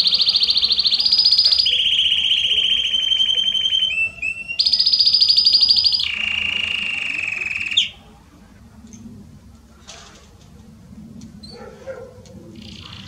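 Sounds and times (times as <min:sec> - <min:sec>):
canary singing rolling trills: 0:00.0 - 0:08.6, 0:11.4 - 0:13.0.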